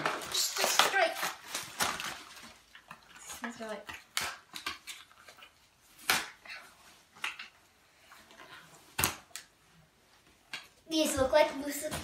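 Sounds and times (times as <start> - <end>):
plastic packaging crinkling: 0.0 - 3.7
sharp plastic snaps: 3.6 - 5.1.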